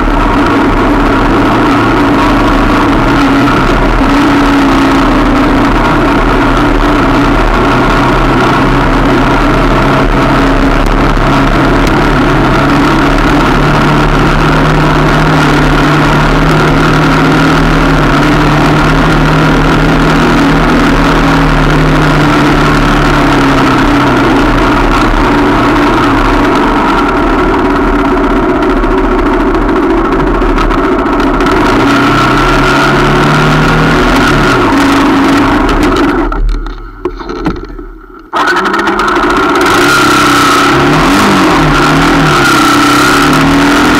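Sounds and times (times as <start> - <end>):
motorcycle engine running: 0.0 - 43.9.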